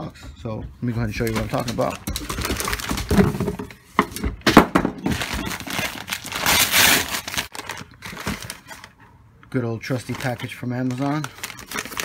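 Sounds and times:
paper mailer bag crinkling: 1.1s - 3.5s, 5.0s - 8.9s, 9.8s - 12.0s
paper bag tearing: 5.1s - 8.9s, 10.0s - 12.0s.

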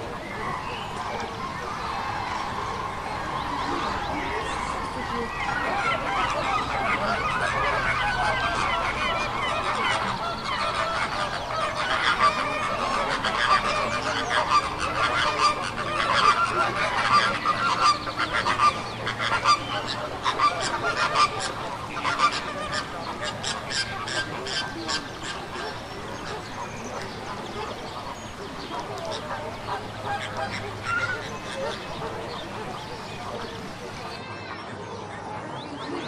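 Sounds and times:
flamingos calling: 0.0s - 34.4s
penguin colony calling: 0.0s - 34.6s.

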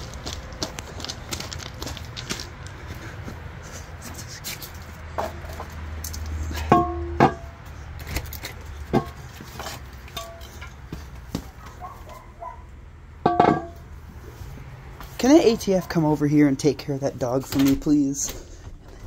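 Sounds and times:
metal wheel rim knocks and clanks: 6.5s - 7.6s, 8.8s - 11.5s, 13.2s - 13.9s.

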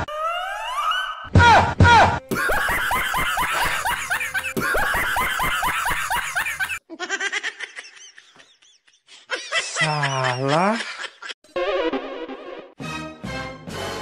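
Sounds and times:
loud laughter: 2.3s - 12.4s.

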